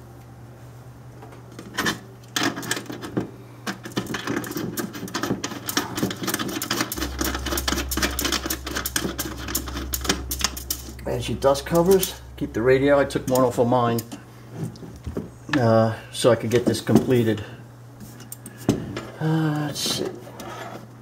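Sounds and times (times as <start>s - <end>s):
steady low hum: 0.0s - 21.0s
cables and parts rattling: 1.5s - 15.6s.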